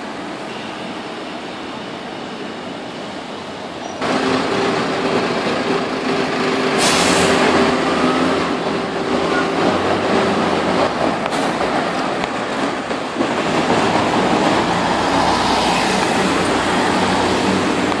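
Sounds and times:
air brake hiss: 6.8s - 7.4s.

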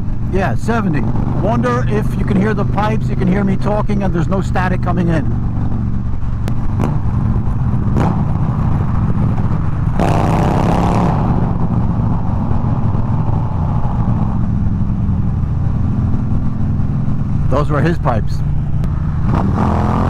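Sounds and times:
motorcycle exhaust drone: 0.0s - 17.6s
road and wind noise: 0.0s - 20.0s
motorcycle revving loudly: 0.8s - 14.7s, 18.8s - 20.0s.

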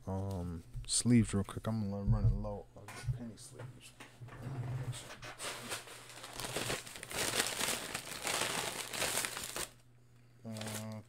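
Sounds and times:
plastic sleeves crinkling: 5.4s - 9.8s, 10.5s - 11.0s.

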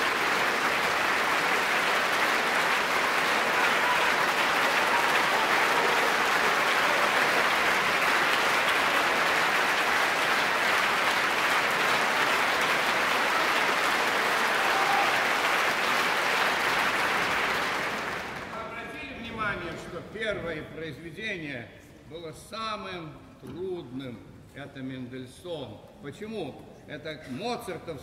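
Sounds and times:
audience applauding: 0.0s - 18.8s.

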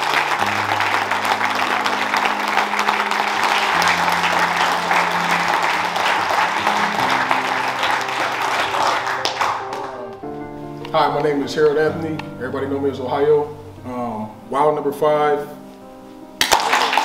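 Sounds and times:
men applauding: 0.0s - 10.2s, 16.4s - 17.0s
soft background music chords: 0.0s - 17.0s.

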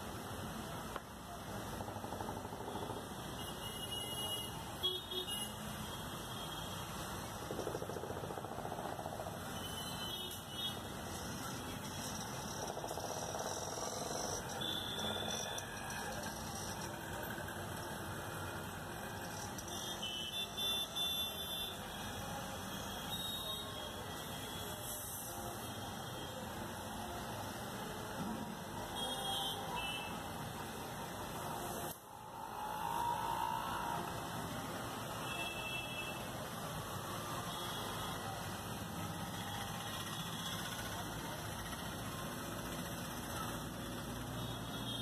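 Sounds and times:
street traffic: 0.0s - 45.0s
construction site din: 10.3s - 21.8s
high-pitched squeal: 32.1s - 34.4s.

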